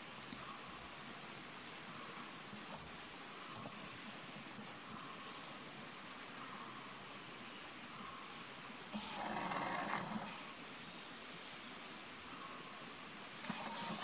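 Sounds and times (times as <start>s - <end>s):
faint background hiss: 0.0s - 14.0s
insect buzz: 8.0s - 11.0s, 12.3s - 14.0s.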